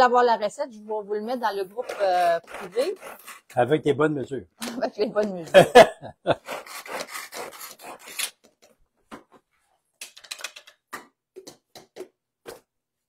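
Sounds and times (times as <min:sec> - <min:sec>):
utensils scraping plastic containers: 0:01.4 - 0:03.6, 0:06.4 - 0:08.8
containers and spoons clicking: 0:10.0 - 0:12.1.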